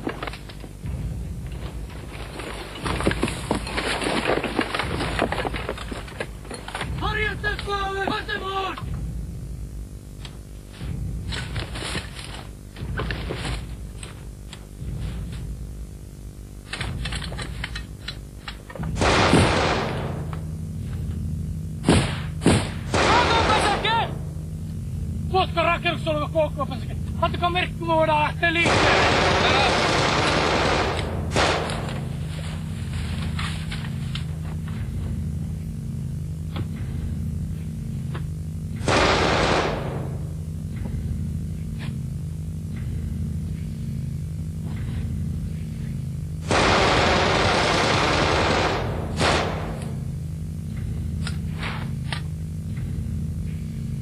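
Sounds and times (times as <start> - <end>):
low hum: 0.0 - 54.0
assault rifle gunfire: 19.0 - 20.3, 28.6 - 32.1, 38.8 - 40.3, 46.4 - 50.0
single gunshots: 19.0 - 20.3, 28.6 - 32.1, 38.8 - 40.2, 46.4 - 50.0.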